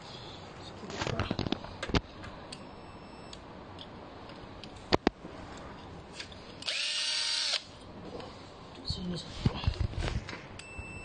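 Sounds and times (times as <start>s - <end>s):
cordless drill motor whirring: 6.6s - 7.7s.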